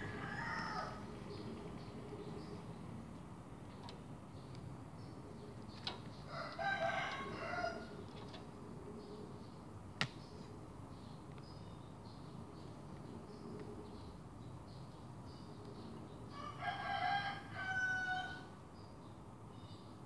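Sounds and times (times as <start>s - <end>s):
faint high chirping: 0.0s - 8.0s.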